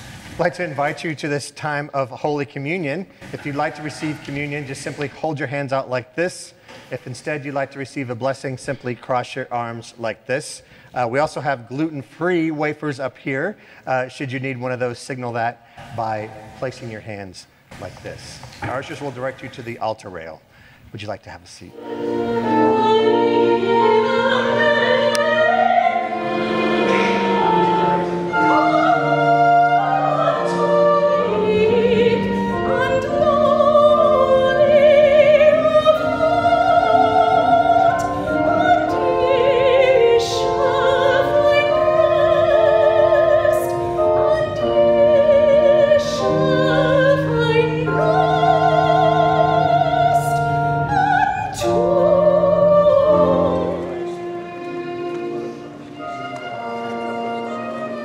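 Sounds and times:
organ sustained low notes: 2.0s - 5.6s, 21.7s - 58.0s
soprano singing with vibrato: 21.7s - 58.0s.

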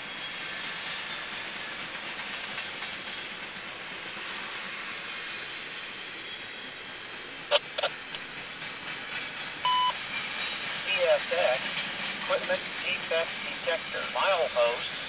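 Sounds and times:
train wheels hissing on rail: 0.0s - 15.0s.

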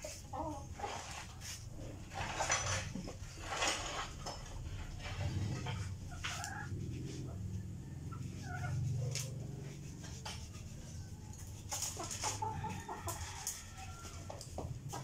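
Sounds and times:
chickens clucking: 0.0s - 2.4s, 4.7s - 10.0s, 11.0s - 15.0s.

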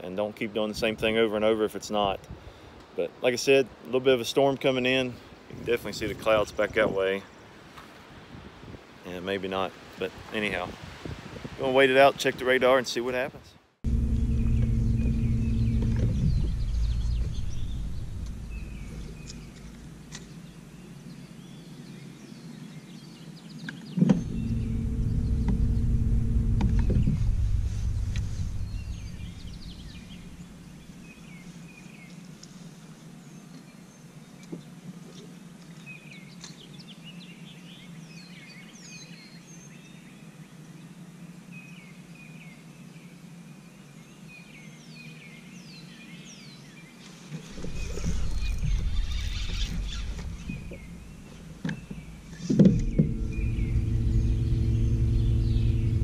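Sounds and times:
songbirds chirping: 0.0s - 10.6s, 11.6s - 56.0s
low hum: 13.8s - 20.8s, 24.0s - 31.3s, 47.5s - 56.0s
low rumble: 13.8s - 20.8s, 24.1s - 31.3s, 47.6s - 56.0s.

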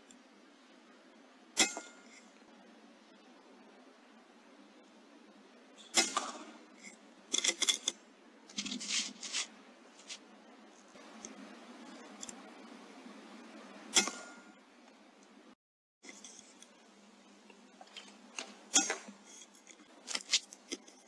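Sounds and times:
air rifle crack: 5.9s - 6.6s.

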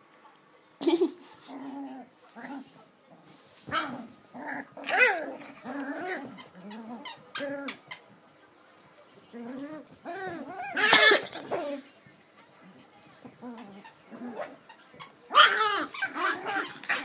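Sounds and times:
puppies yapping and growling: 9.5s - 11.8s, 15.3s - 17.0s.

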